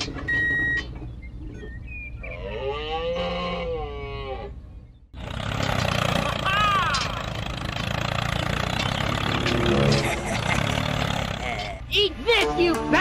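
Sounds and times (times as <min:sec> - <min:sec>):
rising and falling sound effect: 0:09.3 - 0:10.5.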